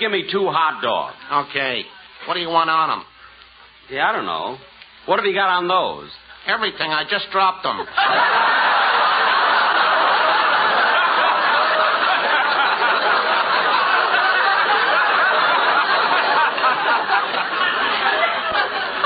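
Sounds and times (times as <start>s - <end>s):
studio audience laughing: 7.7s - 19.0s.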